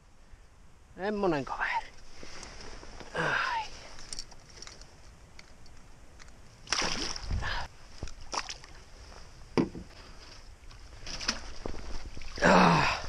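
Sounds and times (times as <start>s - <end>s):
water splashing and sloshing: 6.2s - 13.0s.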